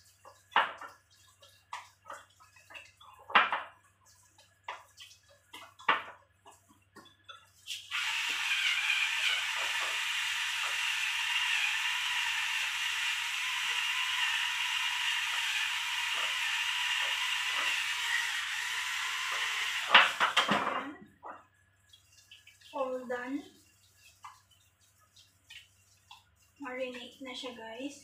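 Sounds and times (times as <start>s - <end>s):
electric pepper mill whirring: 7.8s - 20.4s.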